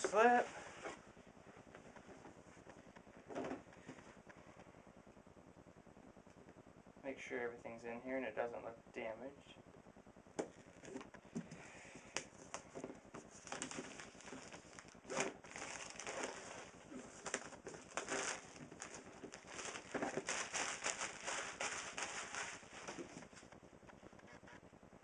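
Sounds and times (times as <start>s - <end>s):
plastic packaging crinkling: 12.2s - 23.5s.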